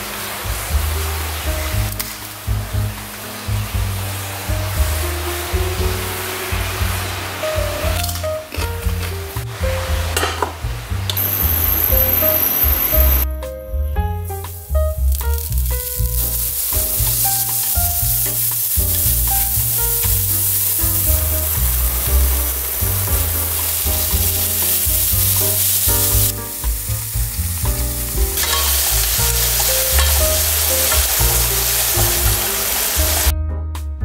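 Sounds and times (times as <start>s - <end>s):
light piano background music: 0.0s - 34.0s
food sizzling in hot oil: 11.2s - 13.2s, 14.4s - 33.3s
chopsticks stirring in a pan: 28.4s - 33.3s.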